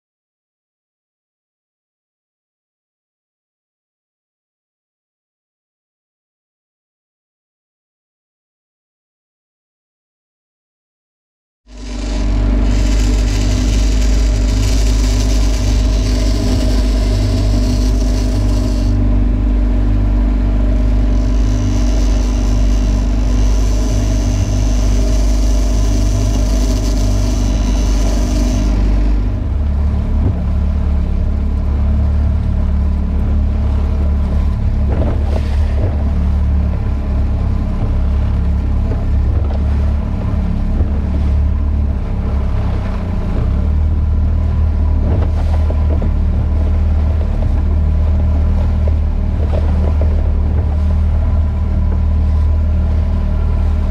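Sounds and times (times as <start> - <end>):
outboard motor droning: 11.7 - 53.9.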